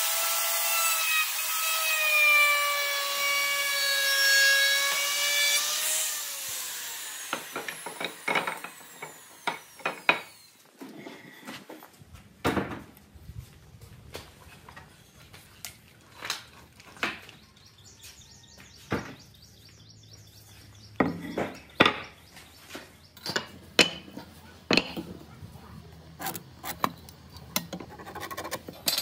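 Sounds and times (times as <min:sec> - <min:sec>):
bird chirping: 0:17.1 - 0:23.3.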